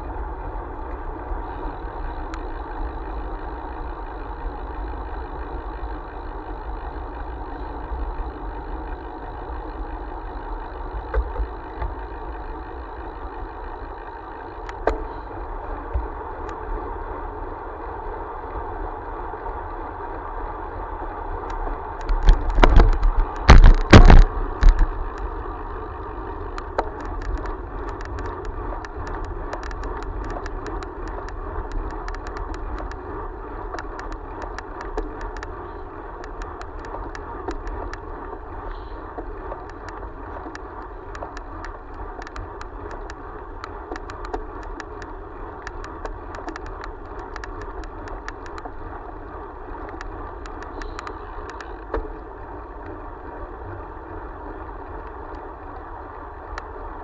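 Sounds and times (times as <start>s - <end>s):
light rattling ticks: 0.0s - 57.0s
wind and road noise: 0.0s - 57.0s
loud thumps and buffeting: 22.2s - 24.9s.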